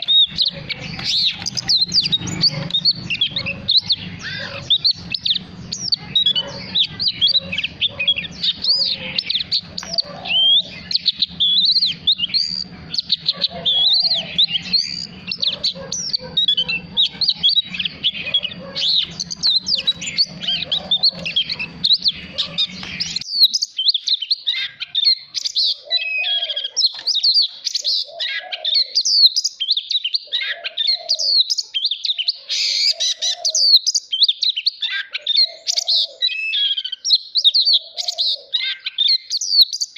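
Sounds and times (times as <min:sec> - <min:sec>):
bird singing whistles and trills: 0:00.0 - 0:39.9.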